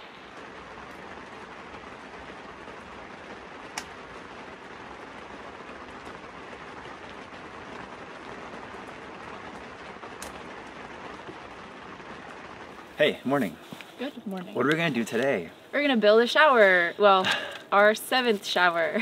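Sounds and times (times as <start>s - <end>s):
wood fire crackling: 0.0s - 19.0s
sharp pops from burning logs: 0.2s - 13.0s.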